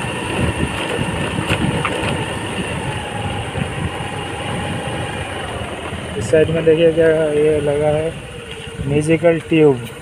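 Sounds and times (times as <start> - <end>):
wind rumble on microphone: 0.0 - 7.3
scooter engine running: 0.0 - 9.7.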